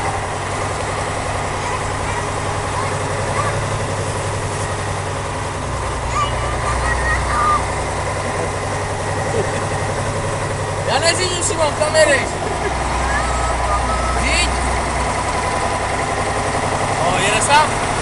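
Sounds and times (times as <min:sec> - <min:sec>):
truck diesel engine running: 0:00.0 - 0:18.0.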